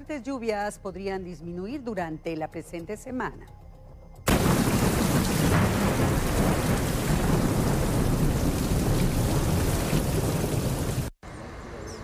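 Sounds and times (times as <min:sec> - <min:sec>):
heavy rain: 0:04.3 - 0:11.2
thunder rumble: 0:04.3 - 0:11.2.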